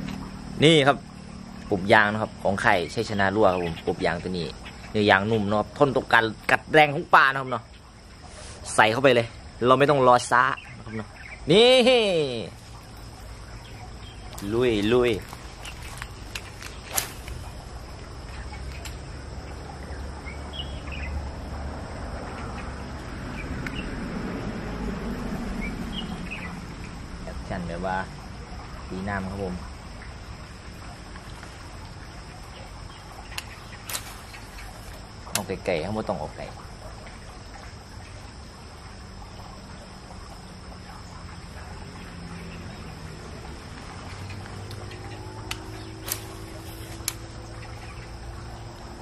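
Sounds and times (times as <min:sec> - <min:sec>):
insects buzzing: 0:00.0 - 0:49.0
outdoor background hiss: 0:00.0 - 0:49.0
bird chirps: 0:06.8 - 0:21.3, 0:22.2 - 0:24.0, 0:25.5 - 0:27.0, 0:32.2 - 0:35.6.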